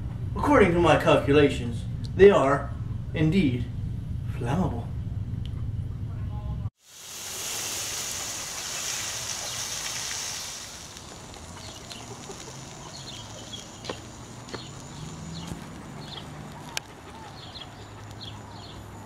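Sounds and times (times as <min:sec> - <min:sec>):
steady high hiss: 0:06.8 - 0:15.4
bird chirps: 0:11.0 - 0:19.0.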